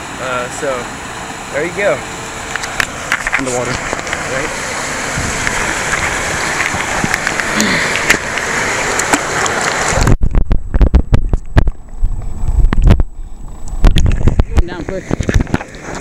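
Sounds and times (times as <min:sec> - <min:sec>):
rushing water: 0:00.0 - 0:16.0
wind: 0:00.0 - 0:16.0
muffled underwater thuds: 0:05.2 - 0:16.0.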